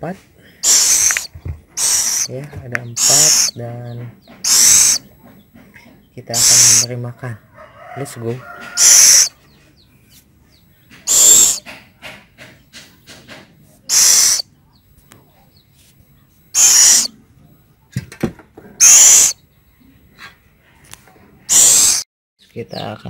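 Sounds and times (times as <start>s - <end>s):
owl chicks hissing calls: 0.6s - 3.6s, 4.3s - 5.1s, 6.3s - 7.0s, 8.4s - 10.2s, 10.9s - 14.5s, 16.5s - 17.1s, 18.8s - 19.4s, 21.5s - 22.1s.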